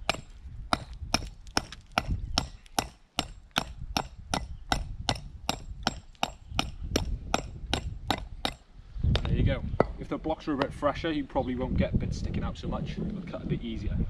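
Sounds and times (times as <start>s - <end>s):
hammer chipping concrete: 0.0s - 8.6s.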